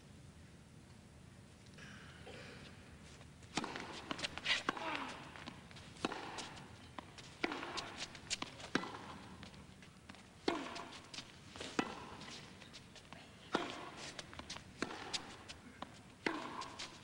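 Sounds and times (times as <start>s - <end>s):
tennis ball struck by rackets: 3.5s - 9.5s, 10.4s - 12.4s, 13.5s - 17.0s
ball bouncing on court: 3.6s - 9.5s, 14.8s - 16.8s.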